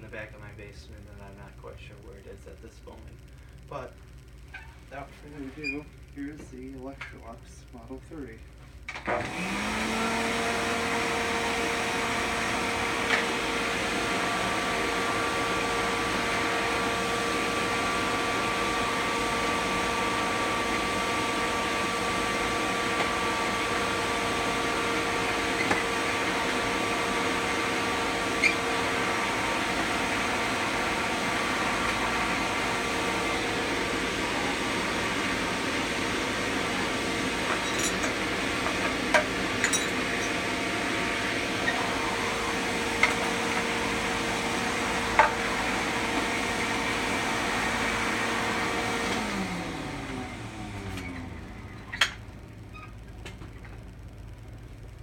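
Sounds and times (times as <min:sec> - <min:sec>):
vacuum cleaner motor whine: 0:08.9 - 0:55.0.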